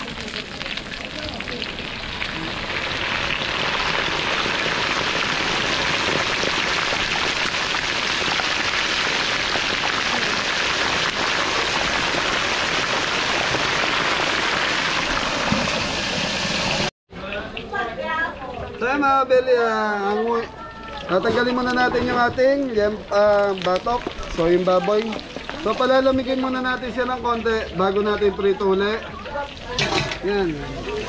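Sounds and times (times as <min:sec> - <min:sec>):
oil sizzling in wok: 0:00.0 - 0:16.9.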